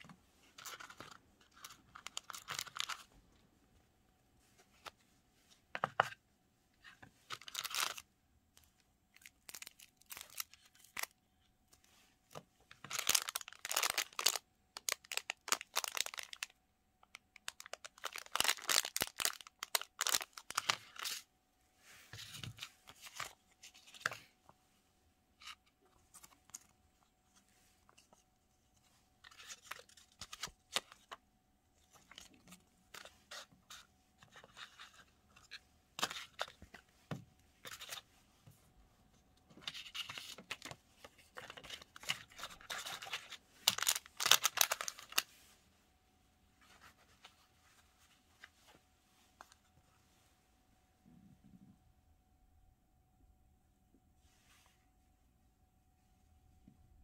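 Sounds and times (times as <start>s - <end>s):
plastic bag crinkling and tearing: 9.2s - 11.1s, 12.8s - 16.5s, 17.1s - 21.2s, 41.4s - 45.2s.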